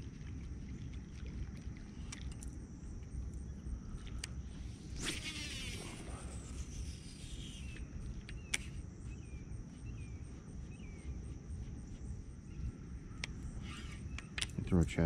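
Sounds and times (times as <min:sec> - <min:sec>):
insects trilling: 0:00.0 - 0:15.0
low steady rumble: 0:00.0 - 0:15.0
wavering bird chirps: 0:04.5 - 0:14.4
sharp clicks: 0:07.7 - 0:08.8.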